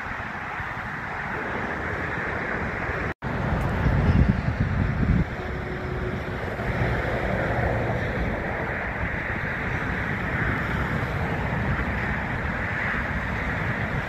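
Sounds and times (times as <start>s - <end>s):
jet engines rushing: 0.0s - 14.0s
wind on microphone: 0.0s - 14.0s.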